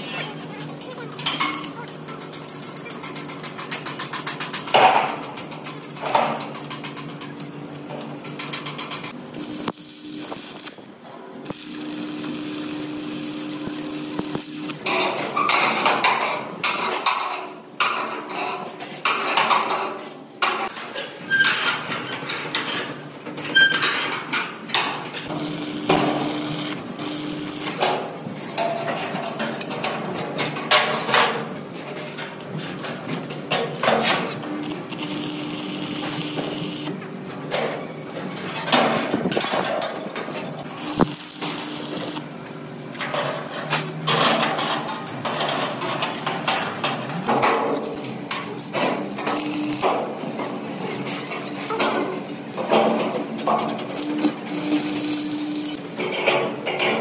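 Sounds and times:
machine hum: 0:08.2 - 0:14.9, 0:25.3 - 0:28.0, 0:34.4 - 0:37.0, 0:40.6 - 0:42.3, 0:53.9 - 0:55.9.

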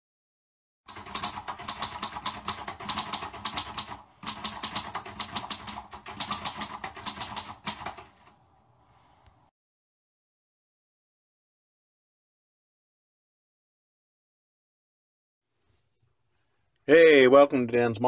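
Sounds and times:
keyboard typing clicks: 0:00.9 - 0:08.3.

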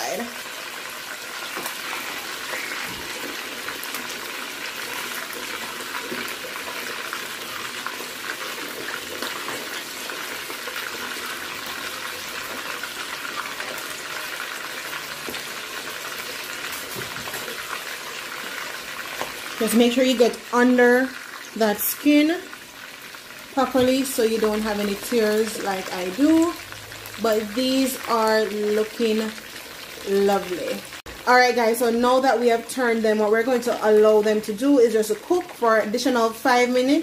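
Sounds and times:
fish sizzling in hot oil: 0:00.0 - 0:37.0.

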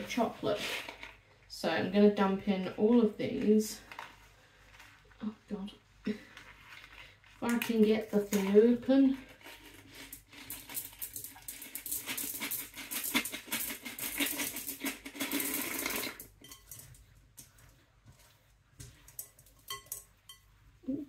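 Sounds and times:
chocolate pieces clattering into bowl: 0:10.1 - 0:16.8.

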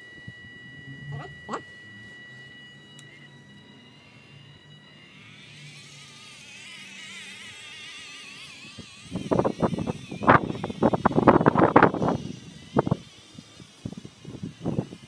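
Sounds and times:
electric motors whining faintly: 0:00.0 - 0:15.0
wind buffeting microphone: 0:08.8 - 0:15.0.

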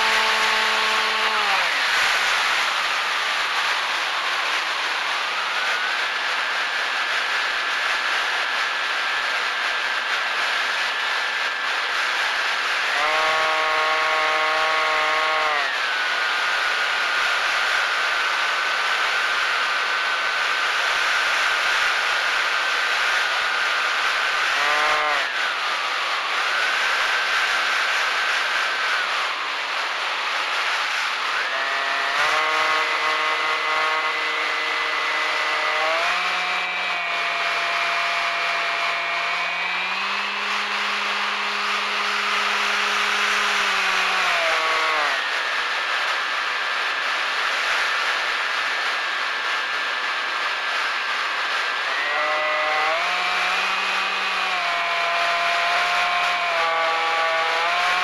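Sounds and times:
drone propellers whining: 0:30.5 - 0:45.5.

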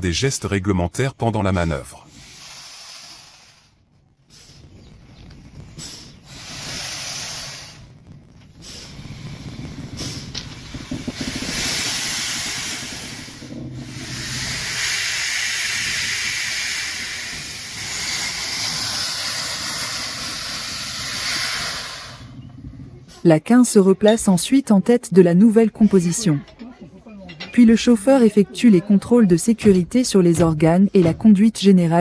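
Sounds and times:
steam hissing from locomotive: 0:02.1 - 0:04.7, 0:05.7 - 0:23.3.

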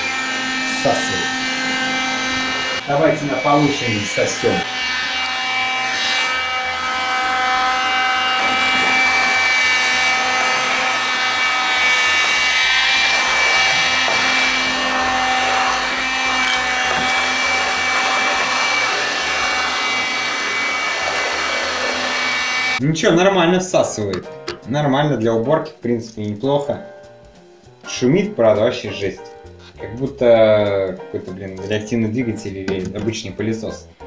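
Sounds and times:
vacuum cleaner motor whine: 0:00.0 - 0:22.8.

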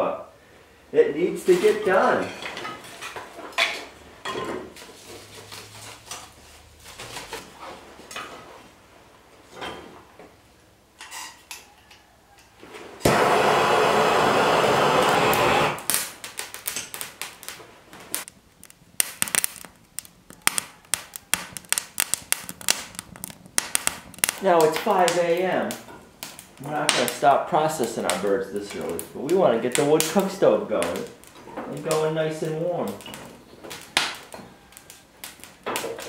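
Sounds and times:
fire crackling and snapping: 0:01.2 - 0:36.0
torch hissing: 0:13.0 - 0:16.3
kindling sticks knocking together: 0:18.2 - 0:29.1.

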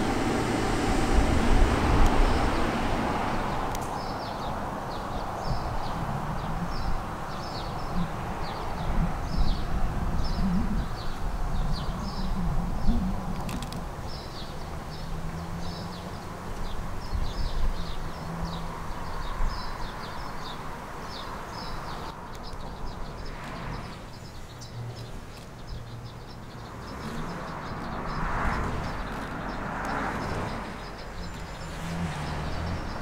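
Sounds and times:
approaching rail car: 0:00.0 - 0:07.9
small birds chirping: 0:00.0 - 0:33.0.

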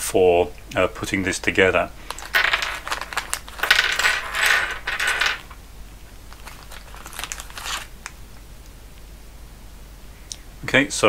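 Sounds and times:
plastic bag crinkling: 0:02.0 - 0:05.6, 0:06.3 - 0:08.2.

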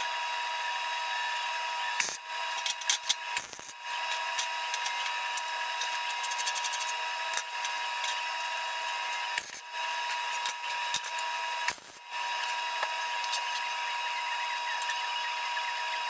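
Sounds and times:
arc welding crackling hiss: 0:00.0 - 0:15.0.

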